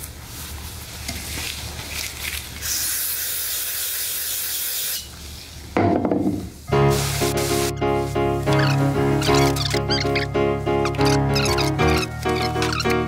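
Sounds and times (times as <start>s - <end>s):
steady hiss: 6.6s - 8.2s.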